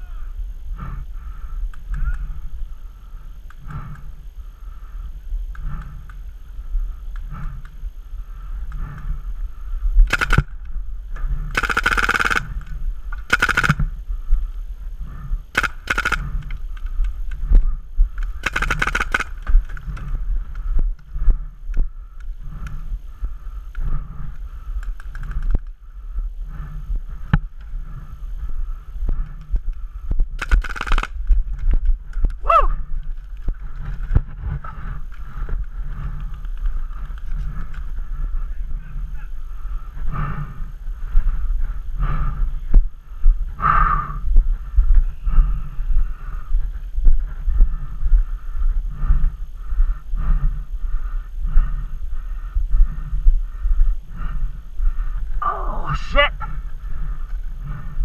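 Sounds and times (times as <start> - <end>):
paintball markers firing: 10.1 - 10.7, 11.5 - 13.9, 15.5 - 17.5, 18.2 - 20.1, 30.4 - 32.4.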